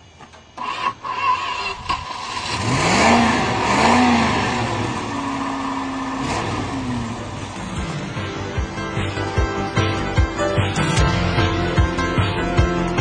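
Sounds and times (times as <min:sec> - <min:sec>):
vehicle engine revving: 0:00.6 - 0:10.2.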